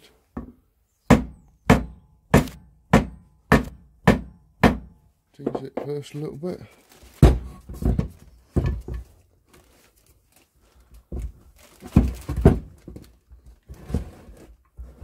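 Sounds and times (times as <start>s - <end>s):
dull knocks of gearbox casing: 7.2s - 9.1s.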